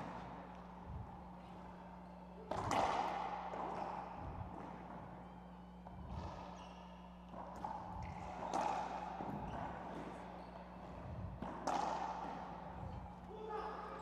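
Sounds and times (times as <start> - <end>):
ball slapping walls and floor: 11.3 - 12.6.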